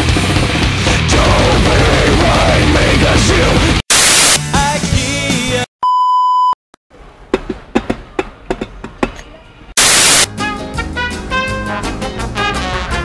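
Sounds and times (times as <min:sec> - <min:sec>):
heavy metal music: 0:00.0 - 0:05.6
tv static: 0:03.9 - 0:04.4, 0:09.8 - 0:10.3
test-card beep: 0:05.8 - 0:06.6.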